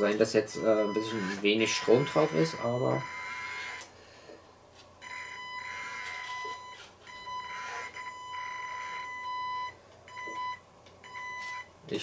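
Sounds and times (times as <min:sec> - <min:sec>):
electric motor whining: 0:00.8 - 0:03.9, 0:05.6 - 0:09.1.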